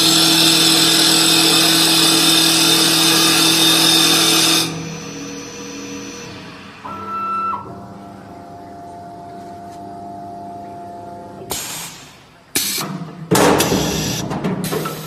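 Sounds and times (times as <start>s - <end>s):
machine hum with whine: 0.0s - 15.0s.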